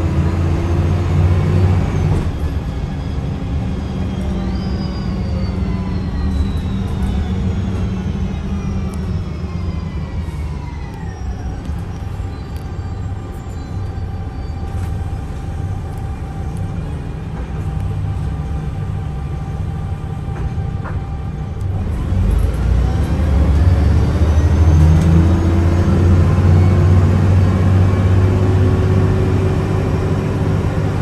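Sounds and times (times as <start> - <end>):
bus engine rumble: 0.0 - 31.0
gearbox whine: 1.4 - 18.8.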